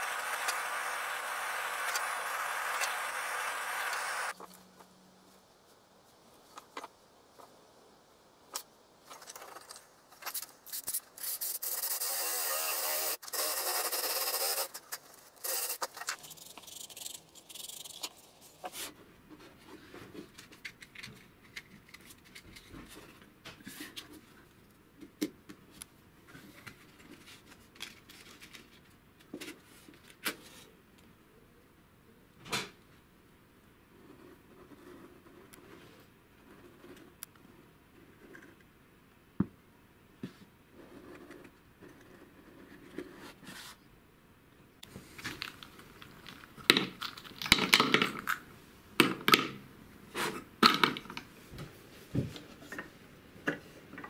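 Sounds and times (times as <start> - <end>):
wooden blocks knocking and clicking: 45.3 - 48.4, 49.0 - 49.6, 50.6 - 51.3.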